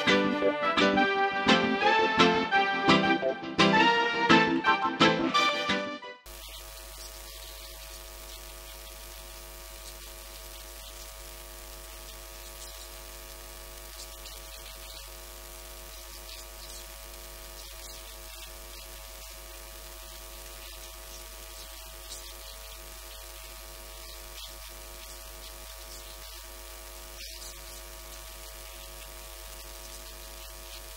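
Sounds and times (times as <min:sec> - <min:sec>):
electrical mains hum with hiss: 0:06.3 - 0:30.9.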